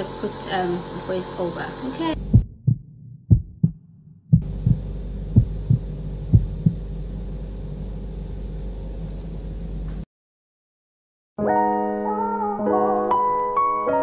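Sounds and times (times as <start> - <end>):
nebulizer compressor humming: 0.0 - 10.0
dull low thumps: 2.2 - 9.1.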